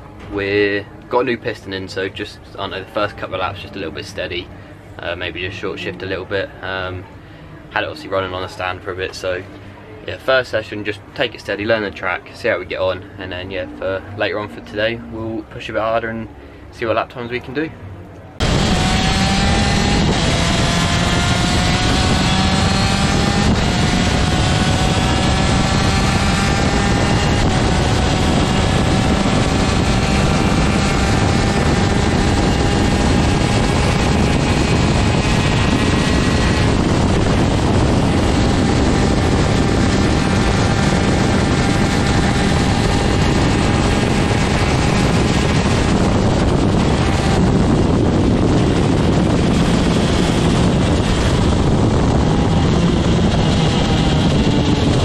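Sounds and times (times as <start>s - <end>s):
two-stroke kart engine racing: 18.4s - 55.0s
wind noise rushing: 18.4s - 55.0s.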